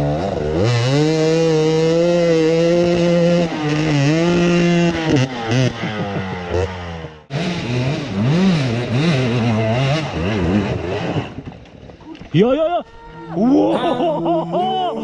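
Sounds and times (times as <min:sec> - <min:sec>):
dirt bike engine revving: 0:00.0 - 0:11.6.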